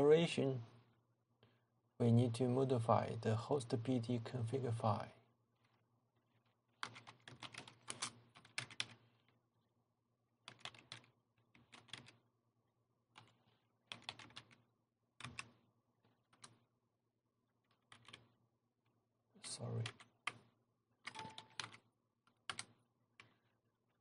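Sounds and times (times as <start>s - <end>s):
computer keyboard clicking: 6.8s - 9.0s, 10.4s - 12.2s, 13.1s - 14.6s, 15.2s - 15.6s, 16.3s - 16.6s, 17.7s - 18.3s, 21.0s - 23.4s.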